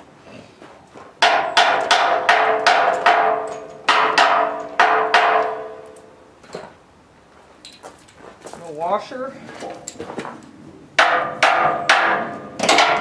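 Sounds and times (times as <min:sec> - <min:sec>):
hammer striking steel: 0:01.2 - 0:06.1, 0:11.0 - 0:13.0.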